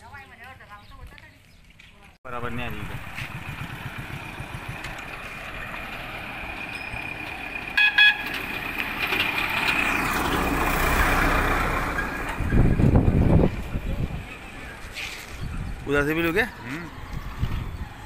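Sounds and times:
motorcycle road noise: 0.0s - 18.0s
truck approaching: 2.3s - 18.0s
vehicle horn toots: 7.8s - 8.4s.

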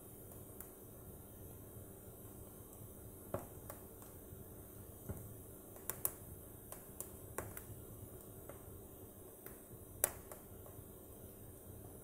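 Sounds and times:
faint low hiss: 0.0s - 12.0s
wood fire crackling and popping: 0.0s - 12.0s.

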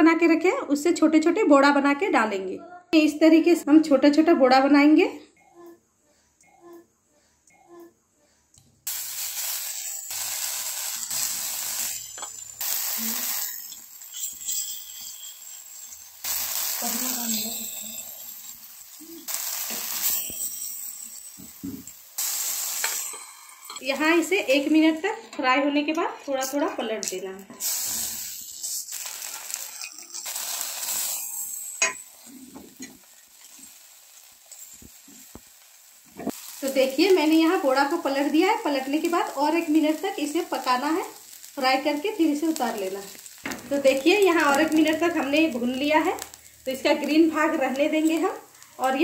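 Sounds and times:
patties sizzling in hot oil: 8.8s - 49.0s.

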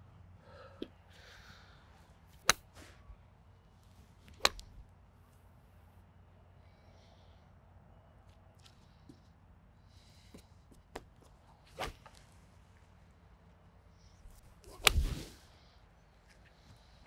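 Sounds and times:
golf club striking ball: 2.4s - 2.7s, 4.4s - 4.8s.

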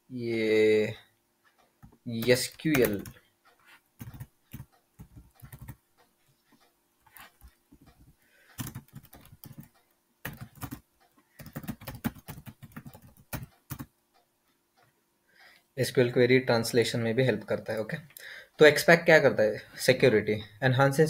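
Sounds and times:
computer keyboard typing: 1.8s - 5.8s, 7.0s - 14.0s.

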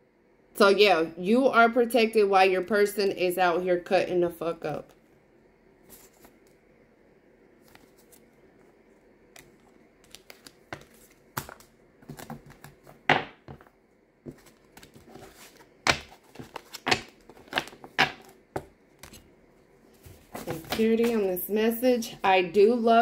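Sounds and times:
cards clicking and rustling: 9.3s - 13.7s, 14.3s - 19.2s.

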